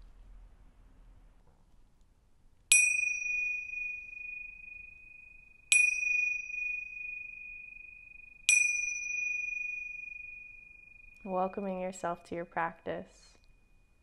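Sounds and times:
small cymbals ringing: 2.7s - 11.9s.

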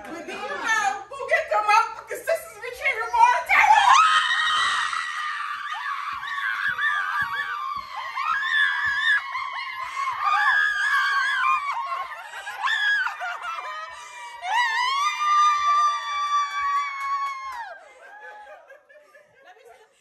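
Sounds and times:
women screaming and squealing: 3.5s - 18.7s
women laughing: 9.4s - 15.0s, 17.8s - 20.0s.

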